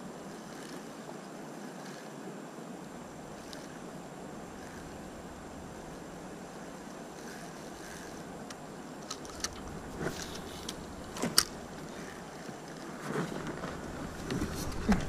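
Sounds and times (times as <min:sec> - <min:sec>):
river hissing: 0:00.0 - 0:15.0
fishing reel clicks and knocks: 0:00.3 - 0:00.8, 0:01.8 - 0:02.1, 0:03.4 - 0:03.8, 0:04.6 - 0:05.0, 0:06.7 - 0:12.8.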